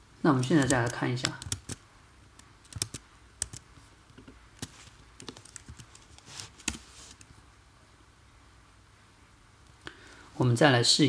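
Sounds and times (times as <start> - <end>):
computer keyboard typing: 0.4 - 1.8, 2.4 - 7.3.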